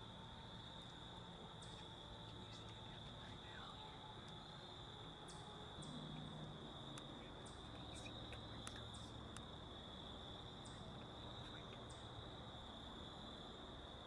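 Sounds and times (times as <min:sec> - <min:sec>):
crickets trilling: 0:00.0 - 0:14.0
light ticks: 0:01.6 - 0:04.4, 0:05.2 - 0:09.5.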